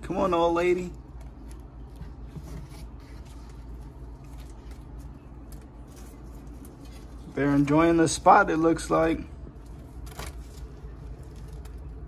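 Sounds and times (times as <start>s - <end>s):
low background hum: 0.0s - 12.0s
faint clicks and rustles: 1.0s - 7.7s.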